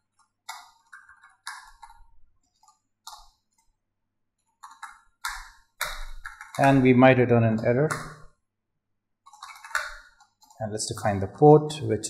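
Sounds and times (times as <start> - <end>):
computer keyboard typing: 0.2 - 3.4, 4.5 - 8.3, 9.2 - 11.5.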